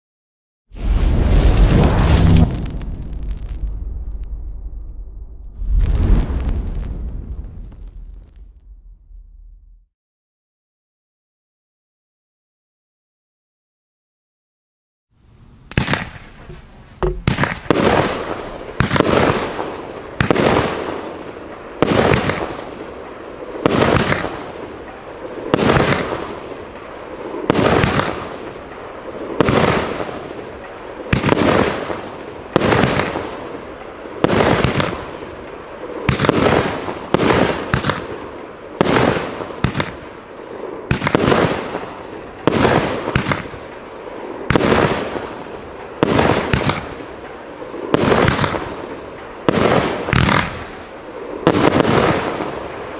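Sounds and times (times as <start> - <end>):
firework cake bangs: 17.0 - 19.6, 25.5 - 26.4, 40.9 - 43.6, 47.9 - 48.8, 49.5 - 50.8.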